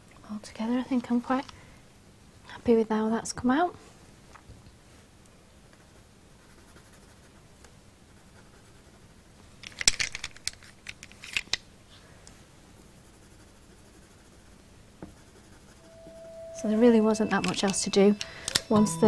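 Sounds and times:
pencil scratching on paper: 5.8s - 7.4s, 8.1s - 9.1s, 12.9s - 17.6s.

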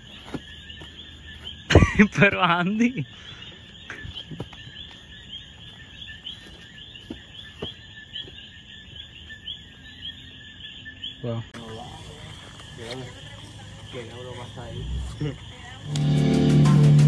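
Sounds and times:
insects calling: 0.0s - 17.0s
footsteps in grass: 3.7s - 9.0s.

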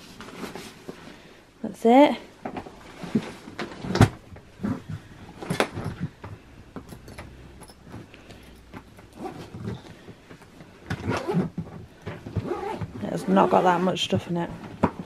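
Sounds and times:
suitcase knocks and clicks: 3.2s - 8.1s, 8.7s - 13.4s, 14.1s - 15.0s.

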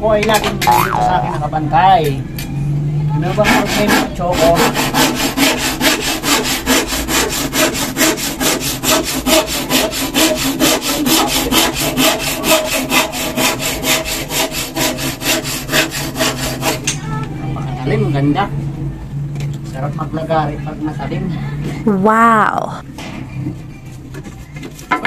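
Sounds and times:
handsaw cutting wood: 3.2s - 16.9s.

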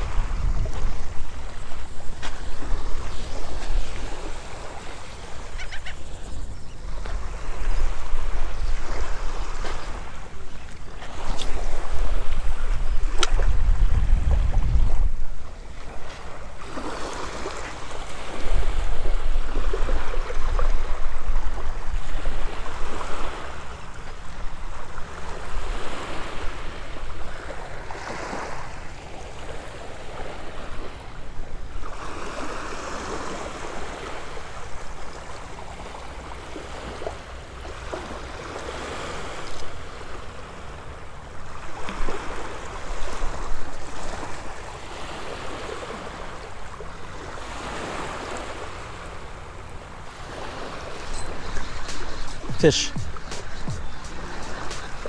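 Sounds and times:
wind buffeting microphone: 0.0s - 4.3s, 11.4s - 16.2s
small waves on a sandy shore: 0.0s - 55.0s.

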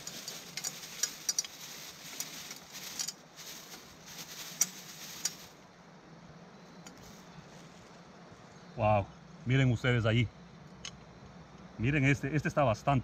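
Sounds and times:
crawfish shells clattering in pot: 0.0s - 5.6s.

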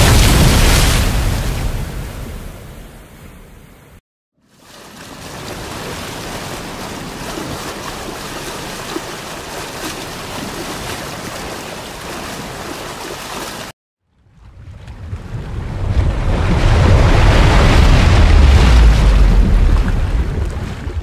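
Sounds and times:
wind: 0.0s - 21.0s
sea water rushing: 4.4s - 13.8s, 15.1s - 21.0s.

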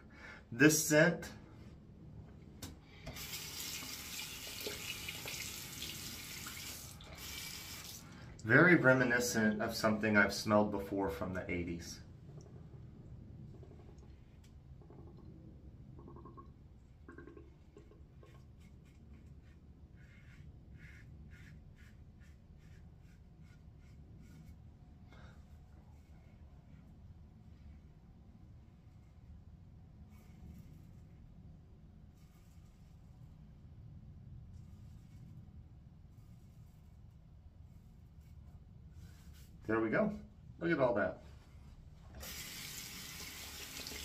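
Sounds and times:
tap running water into sink: 3.1s - 7.9s, 42.2s - 44.0s.

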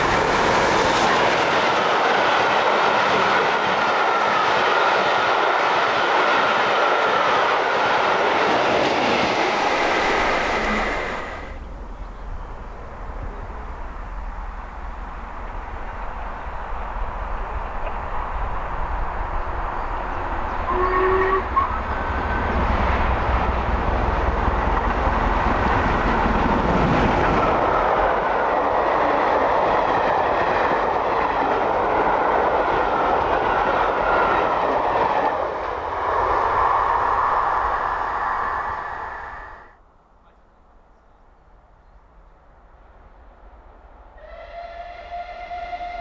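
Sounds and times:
train coaches rumbling and clattering: 0.0s - 39.5s
steam locomotive rushing past: 0.0s - 39.8s, 43.7s - 46.0s
steam locomotive whistle: 20.6s - 22.4s, 44.2s - 46.0s.

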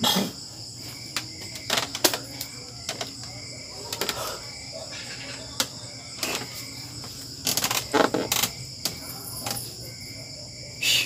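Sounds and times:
crickets chirring: 0.0s - 11.0s
wooden bench knocking and creaking: 1.1s - 4.2s, 5.6s - 9.0s.

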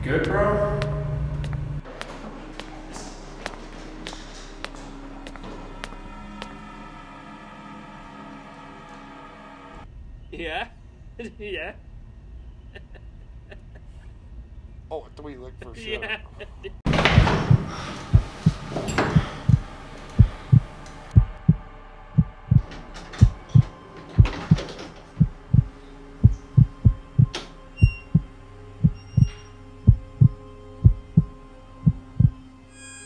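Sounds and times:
heartbeat thumps: 16.9s - 22.6s, 23.2s - 32.4s.

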